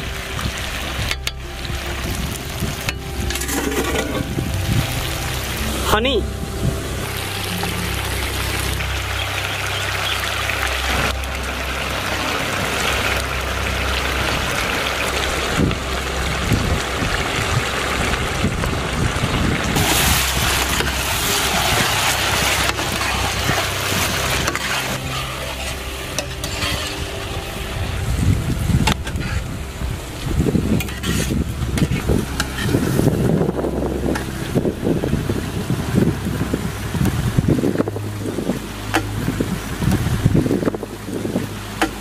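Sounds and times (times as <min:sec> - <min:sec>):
chicken sizzling in pan: 0:19.1 - 0:28.0.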